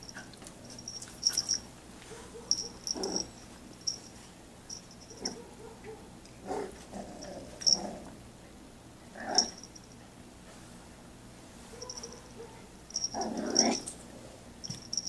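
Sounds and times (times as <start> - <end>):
puppy play growls: 2.4 - 3.4, 6.4 - 8.3, 9.0 - 9.6, 13.0 - 14.4.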